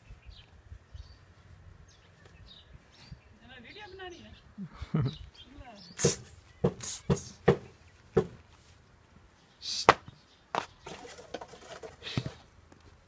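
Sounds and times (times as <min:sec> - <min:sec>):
sharp irregular knocks: 0:06.0 - 0:08.4.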